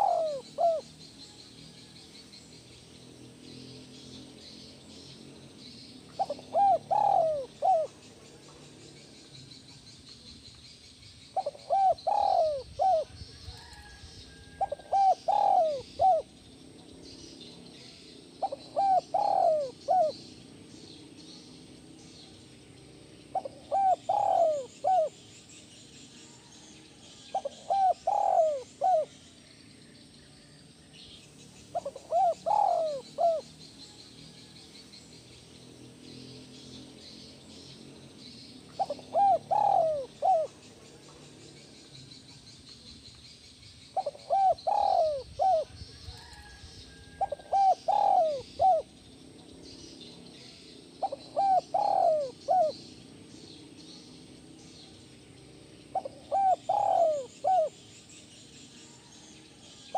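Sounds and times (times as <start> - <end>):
dove cooing: 0.0 - 1.9, 6.1 - 8.6, 11.4 - 16.4, 17.8 - 20.4, 23.3 - 25.2, 26.4 - 29.2, 31.7 - 33.5, 38.7 - 41.1, 44.0 - 49.0, 51.0 - 53.0, 55.9 - 57.8.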